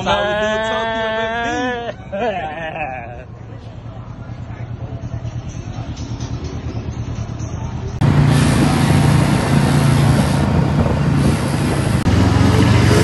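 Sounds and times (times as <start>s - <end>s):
engine idling in traffic: 0.0s - 12.1s
wind rush on microphone: 8.0s - 13.0s.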